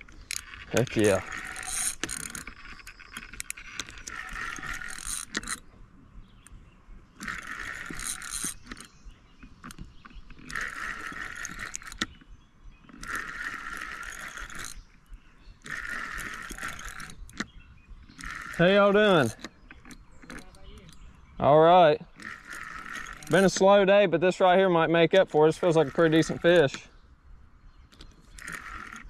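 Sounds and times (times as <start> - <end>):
fishing reel gears whirring: 0.0 - 5.8, 6.4 - 21.1, 22.0 - 24.0, 25.2 - 26.8, 27.9 - 29.0.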